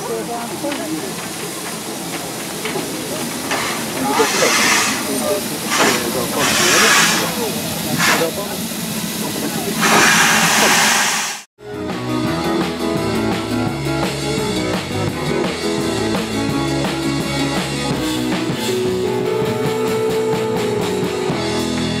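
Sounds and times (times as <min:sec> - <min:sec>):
music with drum beat and bass: 0:11.6 - 0:22.0.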